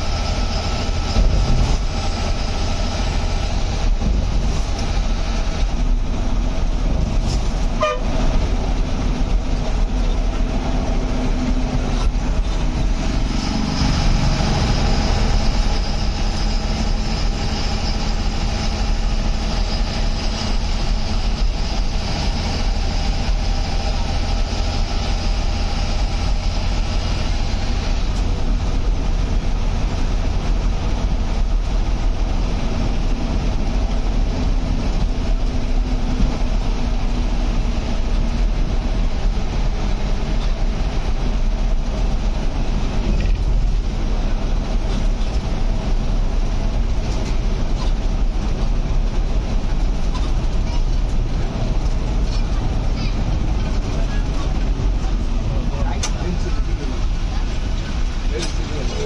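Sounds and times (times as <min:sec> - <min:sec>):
bus engine and road rumble: 0:00.0 - 0:59.0
bus horn toot: 0:07.6 - 0:08.4.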